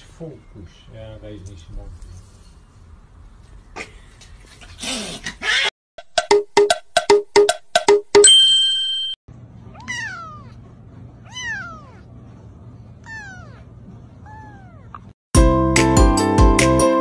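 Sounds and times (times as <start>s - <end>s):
ringing tone: 8.2s - 9.2s
kitten meowing: 9.7s - 10.6s, 11.2s - 12.1s, 13.0s - 15.1s
music: 15.4s - 17.0s.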